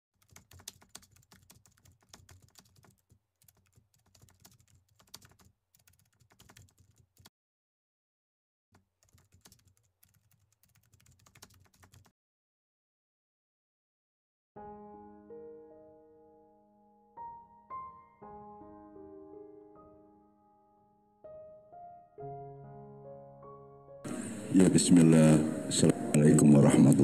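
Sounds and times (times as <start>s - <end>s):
keyboard typing: 0.2s - 7.3s, 8.8s - 12.1s.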